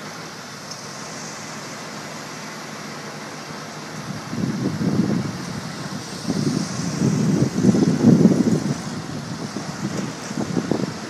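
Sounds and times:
road traffic passing: 0.0 - 11.0
wind buffeting microphone: 4.0 - 11.0.

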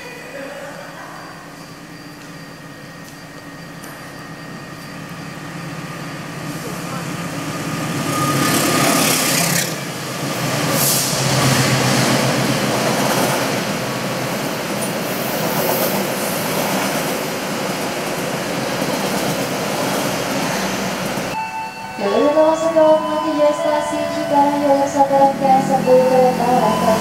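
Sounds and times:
diesel locomotive engine hum: 0.0 - 27.0
train wheels on rails: 1.2 - 21.4.

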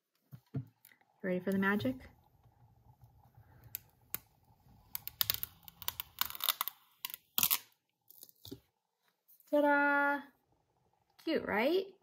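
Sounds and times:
tape peeling with crinkling clicks: 4.9 - 8.6.

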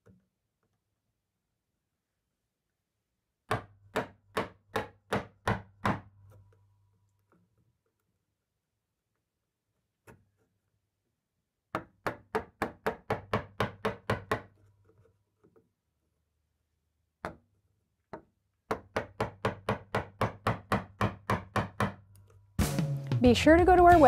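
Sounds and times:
chisel struck into wood: 3.5 - 6.2, 11.7 - 14.5, 18.7 - 22.1.

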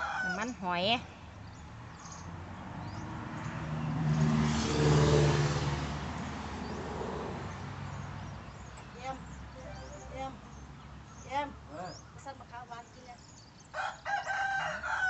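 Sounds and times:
vehicle driving past: 2.4 - 7.8.

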